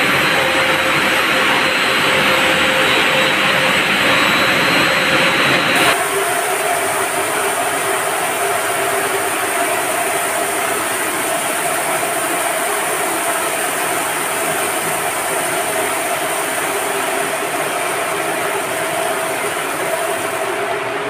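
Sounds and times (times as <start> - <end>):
mid-pitched whine: 0.0 - 21.0
pumps droning: 0.0 - 21.0
even hiss: 5.8 - 21.0.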